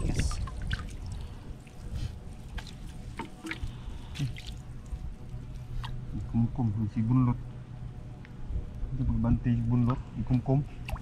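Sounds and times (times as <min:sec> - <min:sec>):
water trickling and splashing: 0:00.0 - 0:06.5, 0:10.2 - 0:11.0
low rumble: 0:00.0 - 0:11.0.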